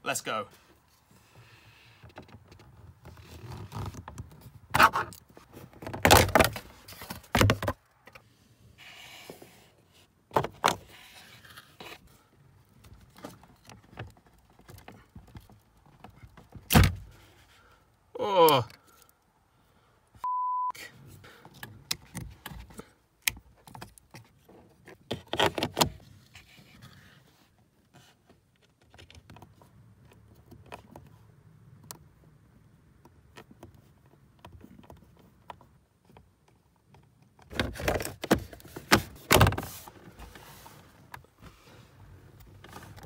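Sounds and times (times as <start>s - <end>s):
loud plastic clattering: 5.7s - 7.8s, 37.5s - 39.8s
short steady beep: 20.2s - 20.8s.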